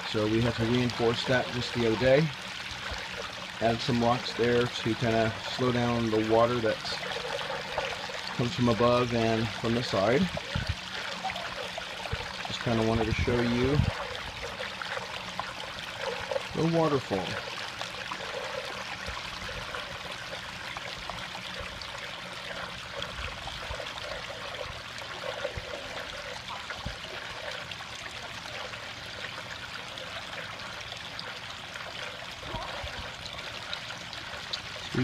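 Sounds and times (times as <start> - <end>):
water splashing over rocks: 0.0 - 35.0.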